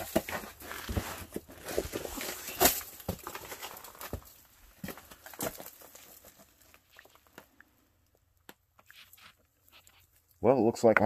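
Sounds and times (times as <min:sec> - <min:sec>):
scrapes and knocks on rock: 0:00.0 - 0:07.2
loose stones shifting underfoot: 0:00.0 - 0:07.6.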